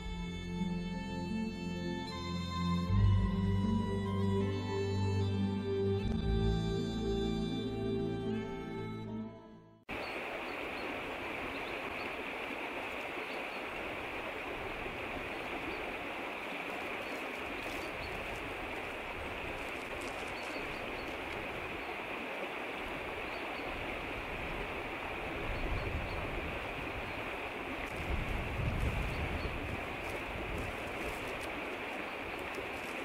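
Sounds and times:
running water rushing: 9.9 - 33.0.

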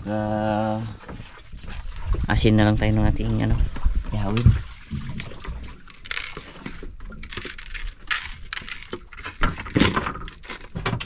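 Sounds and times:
crunching and rustling: 4.8 - 11.0.

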